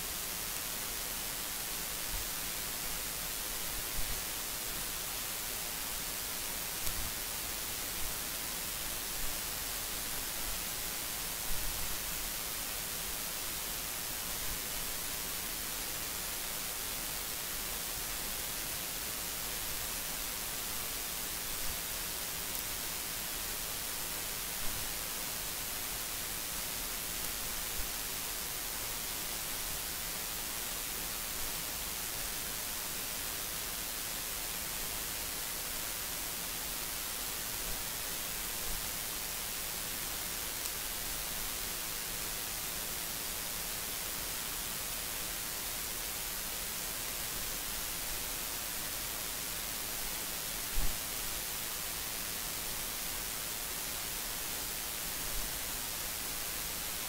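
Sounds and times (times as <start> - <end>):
recording hiss: 0.0 - 57.0.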